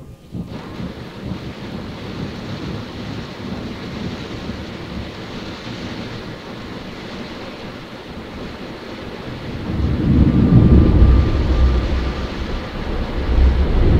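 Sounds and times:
car wash water jets spraying: 0:00.0 - 0:13.9
low rumble: 0:09.1 - 0:13.9.

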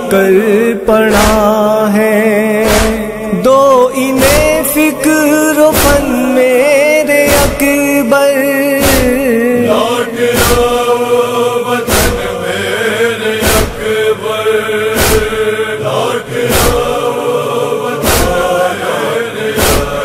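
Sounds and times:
chorus chanting: 0:00.0 - 0:20.0
heavy thumping chest-beating: 0:02.6 - 0:03.0, 0:04.2 - 0:04.6, 0:07.3 - 0:07.7, 0:08.8 - 0:09.2, 0:10.3 - 0:10.9, 0:11.9 - 0:12.4, 0:13.4 - 0:14.0, 0:14.9 - 0:15.5, 0:16.5 - 0:17.0, 0:18.0 - 0:18.6, 0:19.6 - 0:20.0.

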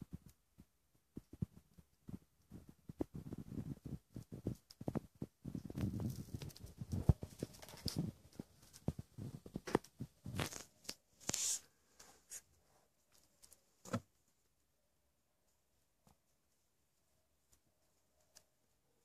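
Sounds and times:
rustling on fabric blanket: 0:01.4 - 0:12.9.

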